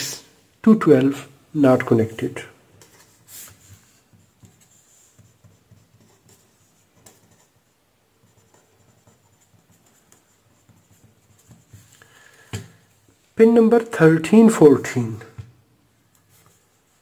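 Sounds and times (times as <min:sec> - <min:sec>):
pen scratching on paper: 0:02.8 - 0:12.0.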